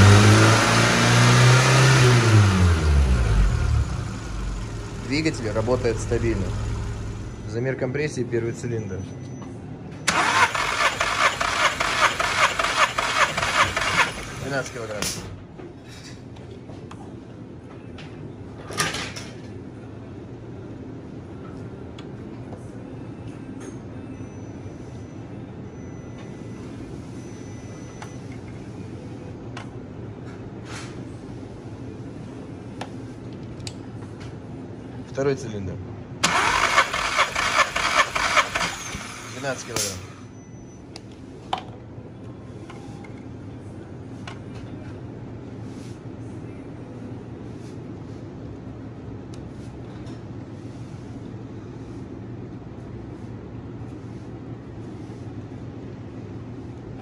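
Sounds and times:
low machine hum: 1.4 - 10.1.

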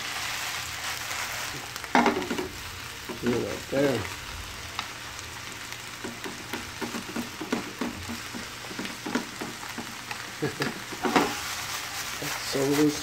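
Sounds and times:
spinach sizzling in oil: 0.0 - 13.0
utensil scraping against pan: 10.8 - 13.0.

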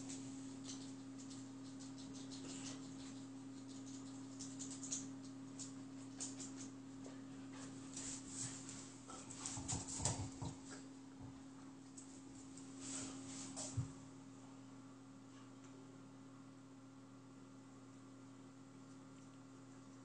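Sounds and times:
dog paws clicking on floor: 0.0 - 14.0
steady low hum: 0.0 - 20.0
dog sniffing and shuffling: 5.6 - 10.9, 11.9 - 14.1.

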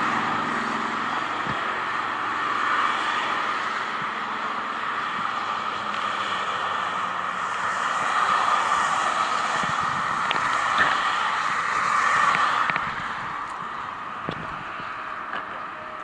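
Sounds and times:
wind on microphone: 0.0 - 2.0, 7.8 - 16.0
road traffic: 0.0 - 16.0.

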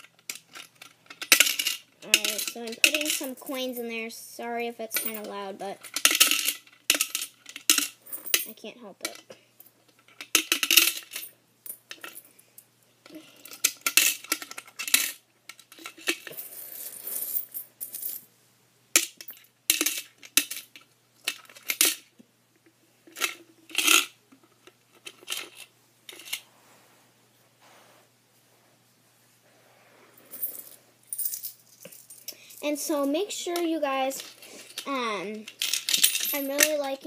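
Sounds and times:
coins clinking into coin bank: 0.1 - 3.9, 4.9 - 9.2, 10.2 - 12.2, 13.4 - 18.2, 19.0 - 22.0, 23.2 - 24.1, 30.3 - 34.9, 35.5 - 36.9.

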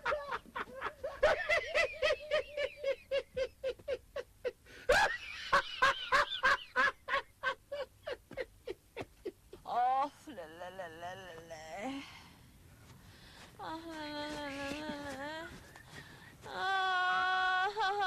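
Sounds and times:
man laughing hard: 0.0 - 9.4.

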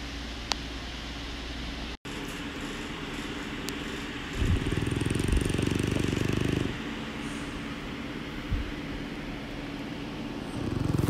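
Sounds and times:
dog snoring: 3.9 - 7.4, 10.5 - 11.0.

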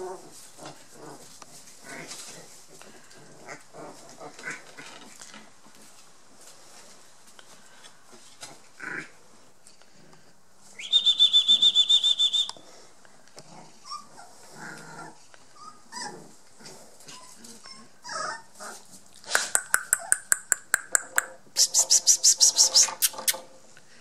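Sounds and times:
puppies whimpering and squeaking: 13.8 - 18.8, 21.6 - 23.5
rapid high-pitched chirps: 19.6 - 23.4.

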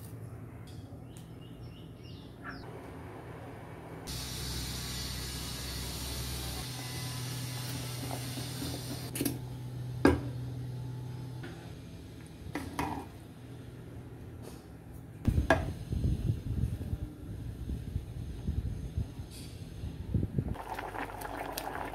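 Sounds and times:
curry bubbling in a pot: 20.6 - 21.9.

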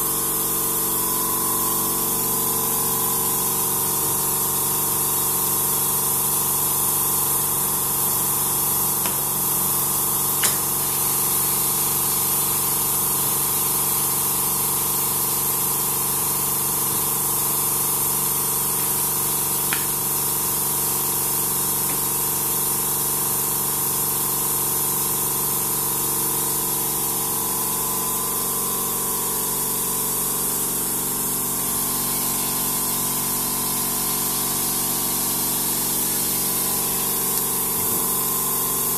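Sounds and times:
compressed air hissing: 8.3 - 14.4, 15.4 - 23.5, 35.6 - 38.9.

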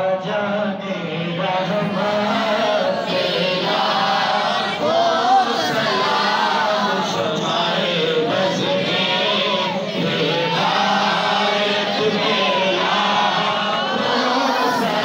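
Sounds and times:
group of men chanting: 0.0 - 15.0.

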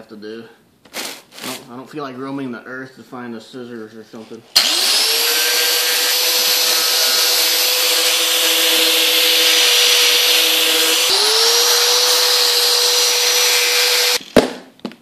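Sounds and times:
angle grinder cutting cardboard: 4.6 - 14.5.

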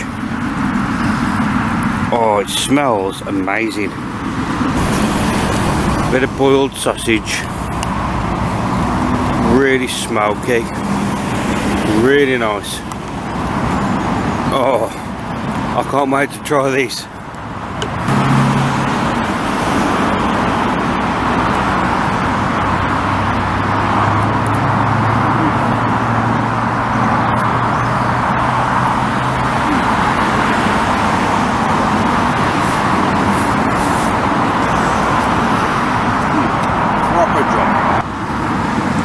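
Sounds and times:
heavy vehicle engine hum: 0.0 - 39.0
road traffic tyre noise: 0.0 - 39.0.

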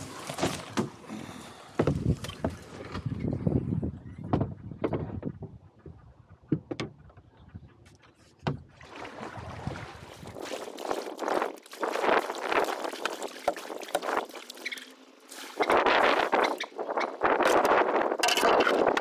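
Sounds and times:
paddle splashing water: 0.0 - 3.1, 8.2 - 19.0.

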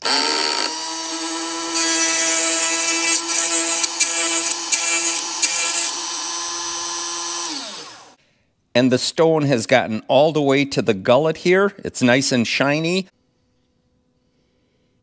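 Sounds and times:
small electric motor running: 0.0 - 8.2.

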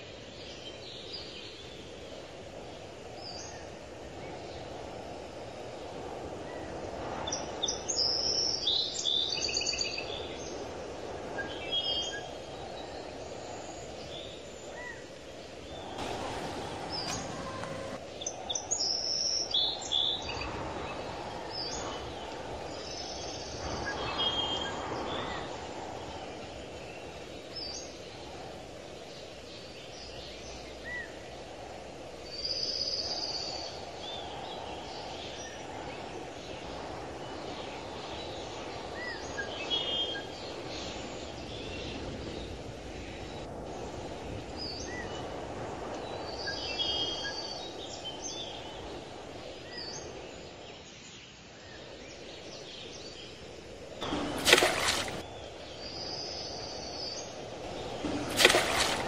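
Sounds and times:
birds chirping: 13.2 - 31.5, 52.8 - 59.0.

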